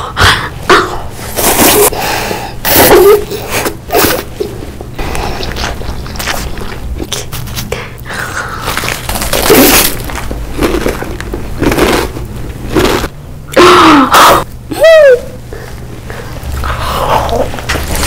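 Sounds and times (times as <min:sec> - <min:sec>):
crunching and chewing chips: 0:05.2 - 0:13.1.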